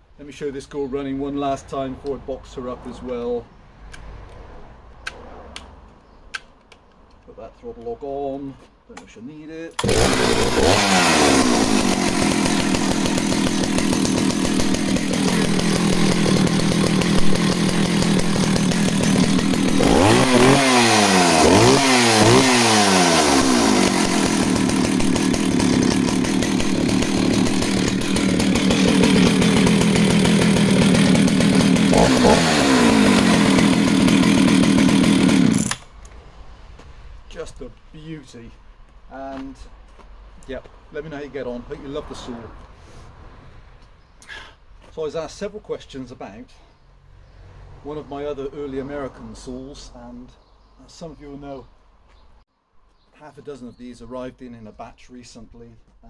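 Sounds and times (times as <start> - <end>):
chainsaw idling and revving: 9.8 - 35.9.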